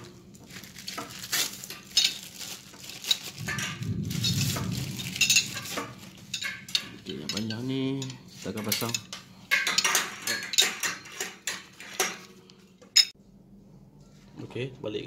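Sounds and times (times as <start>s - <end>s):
plastic wrapping crinkling: 0.0s - 7.1s.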